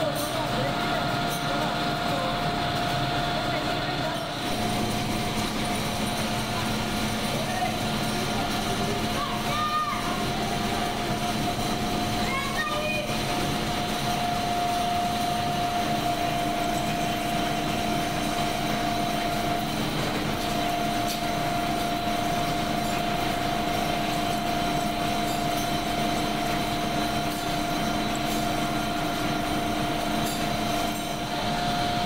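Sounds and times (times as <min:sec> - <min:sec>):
factory machinery whining: 0:00.0 - 0:32.0
low machinery hum: 0:00.0 - 0:32.0.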